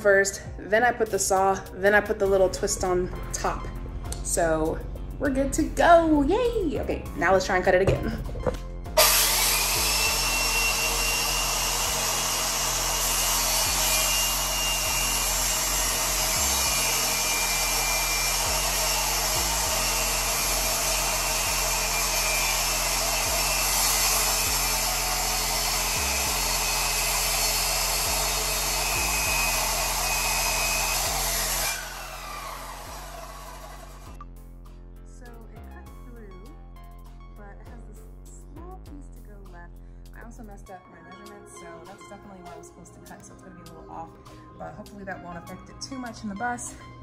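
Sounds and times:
circular saw cutting wood: 8.9s - 34.3s
saw motor winding down: 8.9s - 34.3s.

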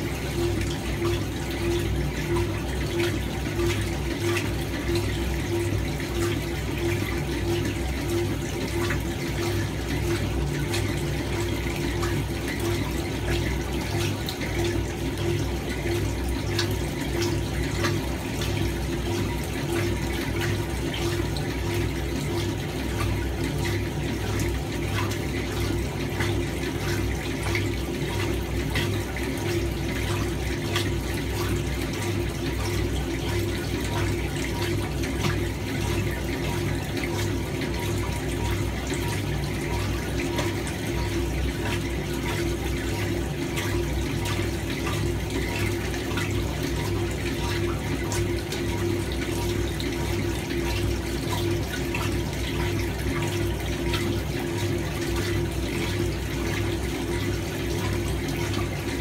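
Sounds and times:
washing machine motor hum: 0.0s - 59.0s
water churning and sloshing: 0.0s - 59.0s.

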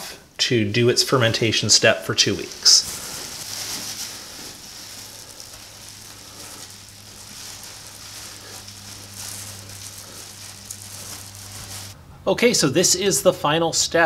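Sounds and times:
low steady hum: 0.0s - 12.4s
plastic bag rustling and crinkling: 2.2s - 12.0s.

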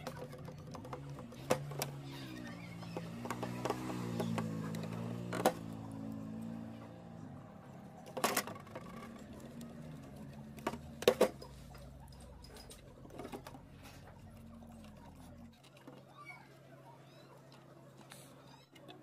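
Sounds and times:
sharp clicks and knocks: 2.8s - 5.8s.

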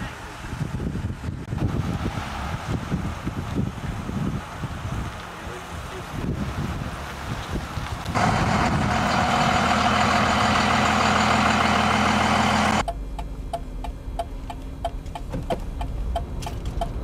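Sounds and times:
low engine hum: 0.0s - 17.0s
loud vehicle engine running: 1.5s - 12.9s
turn signal ticking: 10.1s - 17.0s.

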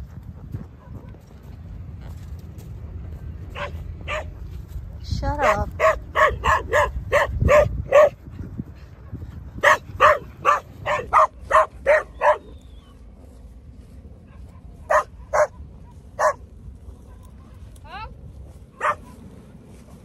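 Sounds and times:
dog barking: 3.5s - 4.3s, 5.4s - 8.2s, 9.6s - 12.6s, 14.3s - 15.6s, 16.2s - 16.4s, 18.8s - 19.2s.

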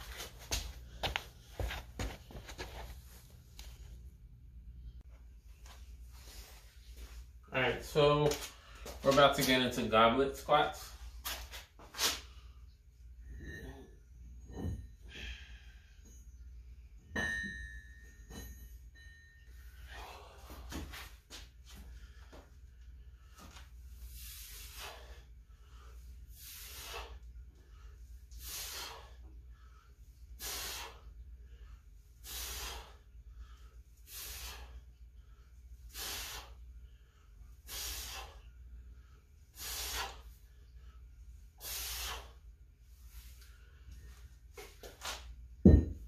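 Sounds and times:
steady low hum: 0.0s - 9.1s, 10.8s - 46.0s
man exhaling forcefully: 30.4s - 31.0s, 32.2s - 33.0s, 35.9s - 36.6s, 37.7s - 38.4s, 39.6s - 40.2s, 41.6s - 42.4s.

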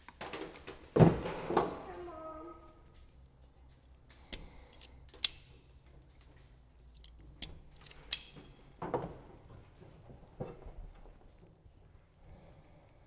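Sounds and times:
wire tool snipping and clicking: 4.3s - 5.5s, 7.0s - 8.4s.

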